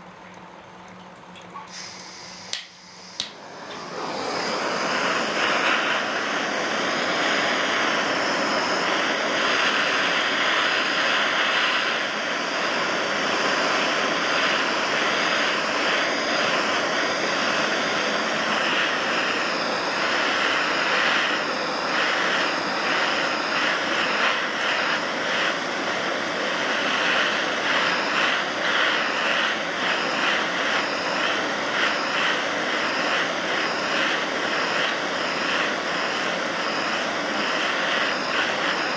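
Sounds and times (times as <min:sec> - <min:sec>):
gas torch hissing: 0:01.5 - 0:38.9.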